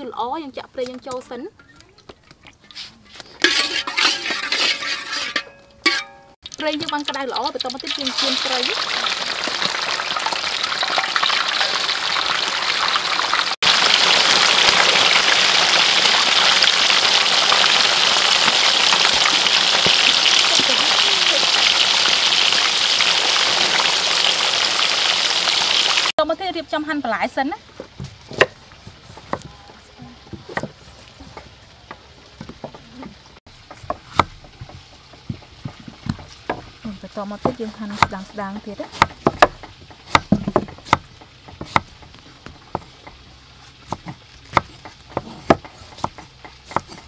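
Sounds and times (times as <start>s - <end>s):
fish sizzling in hot oil: 5.8s - 26.1s, 33.4s - 45.1s
knife striking wooden board: 33.7s - 36.7s, 38.9s - 42.0s.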